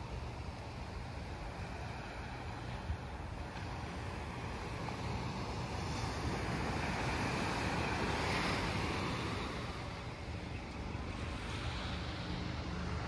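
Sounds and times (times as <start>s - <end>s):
surf washing onto beach: 0.0s - 13.0s.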